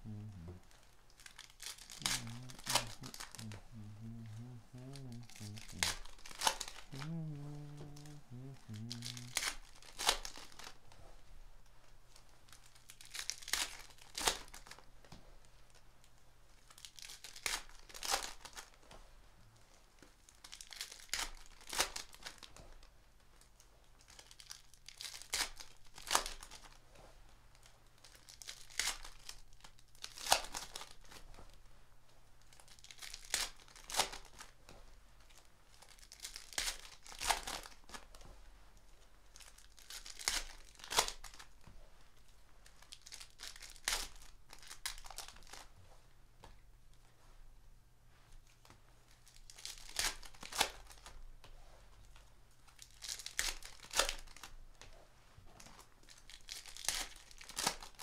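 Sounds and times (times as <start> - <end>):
foil wrappers tearing and crinkling: 1.2 - 10.8, 12.5 - 14.9, 16.6 - 18.8, 20.3 - 22.5, 24.0 - 26.8, 27.6 - 31.2, 32.5 - 34.5, 35.3 - 38.1, 39.4 - 41.6, 42.6 - 45.7, 49.2 - 51.1, 52.7 - 54.5, 56.1 - 58.0.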